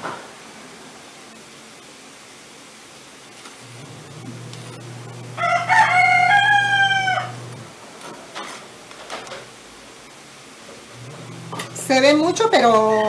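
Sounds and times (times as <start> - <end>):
low steady hum: 3.6 - 7.9, 9.8 - 13.0
rooster crowing: 5.0 - 7.6.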